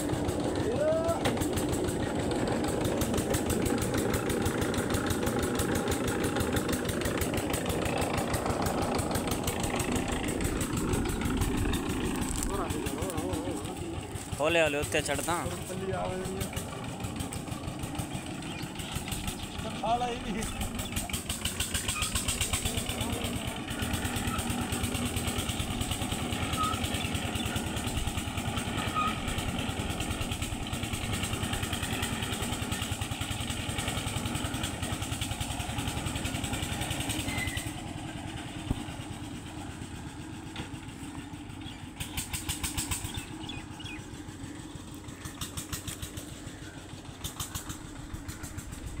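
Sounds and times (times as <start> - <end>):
small engine running: 0.0 - 49.0
rapid ticking: 43.9 - 49.0.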